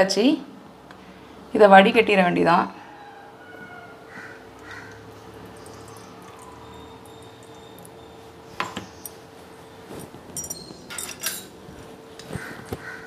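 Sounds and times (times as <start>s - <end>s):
steel kitchenware clinking: 10.4s - 11.5s.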